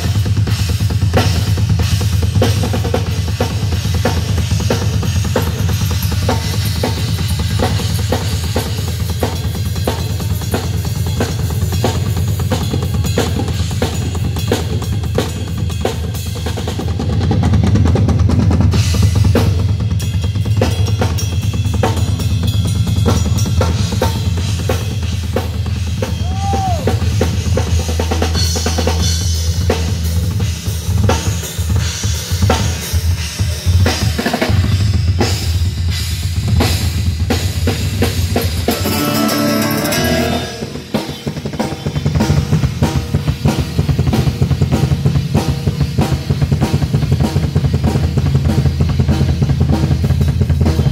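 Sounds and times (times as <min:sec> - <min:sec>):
drum kit playing groove: 0:00.0 - 0:50.9
low bass notes: 0:38.7 - 0:41.0.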